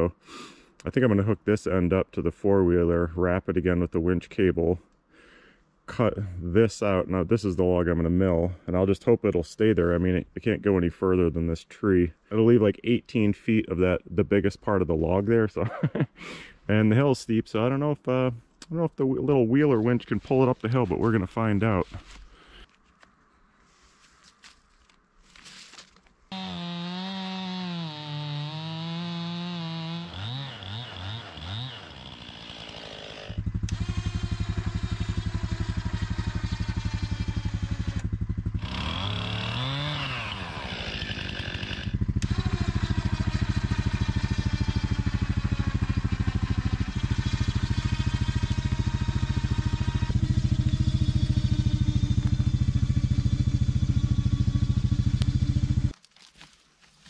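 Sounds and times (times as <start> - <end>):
atv engine droning: 26.3 - 56.0.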